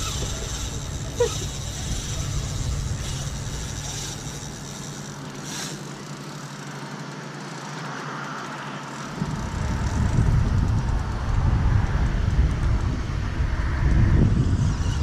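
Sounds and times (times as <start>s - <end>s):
wind rumbling on microphone: 0.0s - 5.2s, 9.1s - 15.0s.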